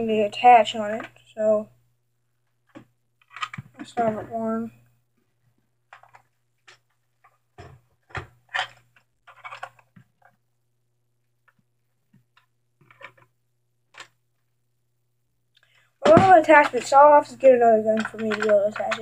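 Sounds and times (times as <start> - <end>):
plastic clips clicking: 18.0 - 19.0.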